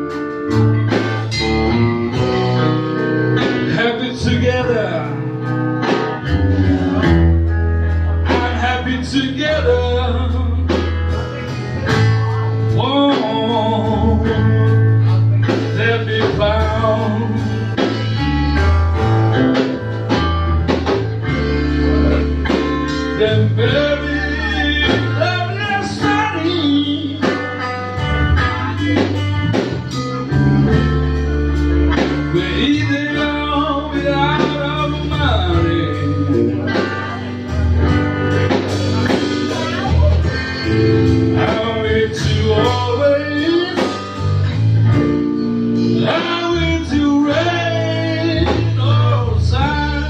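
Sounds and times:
blues band playing: 0.0 - 50.0.

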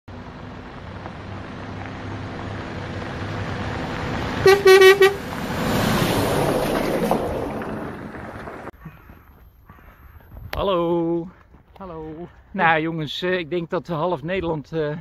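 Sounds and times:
motorhome engine on gravel: 0.1 - 8.8
short horn toots: 4.4 - 5.2.

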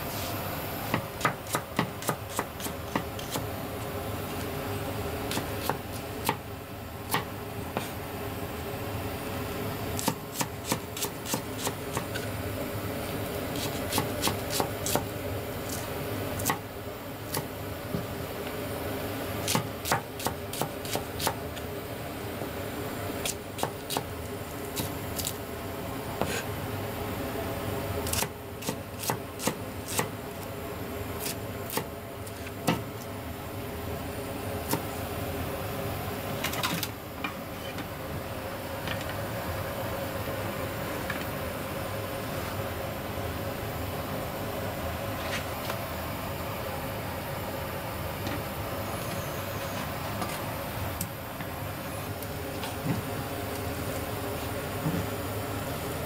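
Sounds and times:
knife chopping on cutting board: 0.9 - 3.4, 10.0 - 12.2, 26.2 - 26.4.

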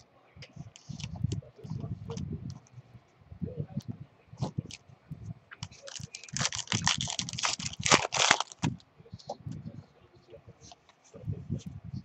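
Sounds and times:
handling rustle: 5.5 - 8.8
wrapper tearing and crinkling: 5.7 - 8.7.

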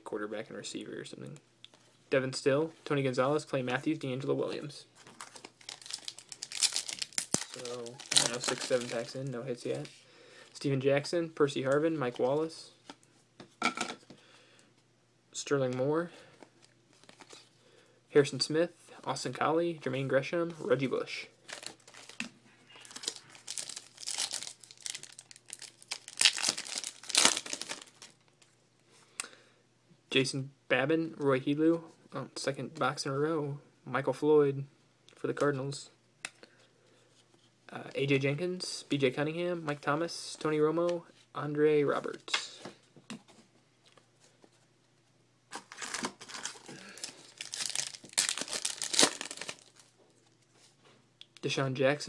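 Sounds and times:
foil wrapper crinkling and tearing: 5.1 - 9.2, 21.5 - 22.2, 22.8 - 28.4, 45.5 - 49.9.

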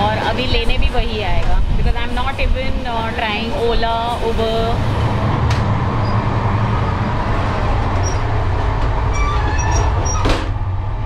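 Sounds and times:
train wheels rumbling on track: 0.0 - 11.0
faint high squeaks: 8.0 - 8.3, 9.1 - 10.3.

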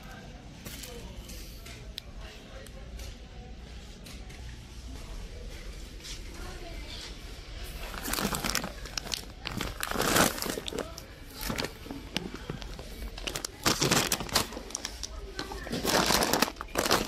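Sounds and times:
plastic packaging crinkling: 7.7 - 17.0.

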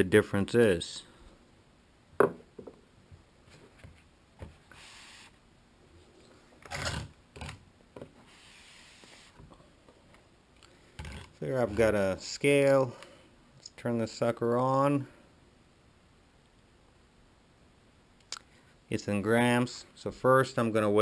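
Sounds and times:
objects rubbing and sliding: 3.4 - 9.6, 10.8 - 12.0.

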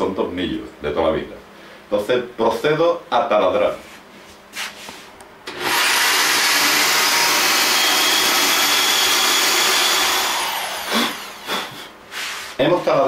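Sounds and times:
electric drill whining: 5.5 - 11.8.

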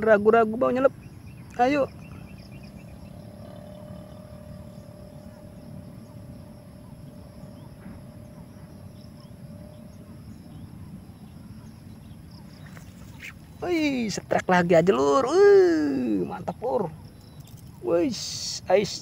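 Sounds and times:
faint steady hum: 0.0 - 19.0
faint chirps: 0.1 - 14.2, 15.0 - 19.0
low rumbling noise: 0.9 - 14.0
thin high whine: 1.4 - 14.1.

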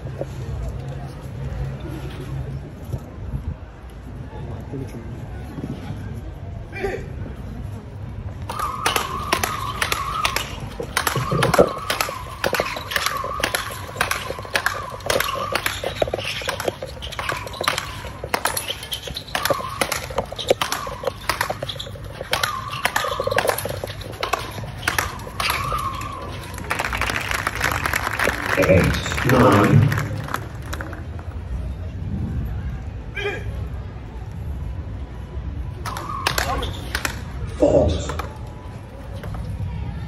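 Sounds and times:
rackets hitting ball: 8.4 - 31.3, 35.8 - 37.4.

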